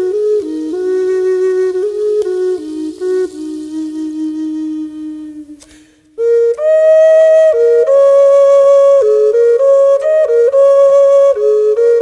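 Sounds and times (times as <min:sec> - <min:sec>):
solo flute melody: 0:00.0 - 0:12.0.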